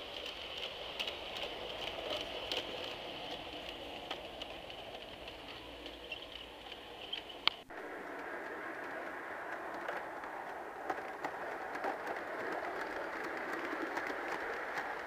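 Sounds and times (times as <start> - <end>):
faint clicks: 0.0 - 15.0
model train rolling rumble: 0.0 - 15.0.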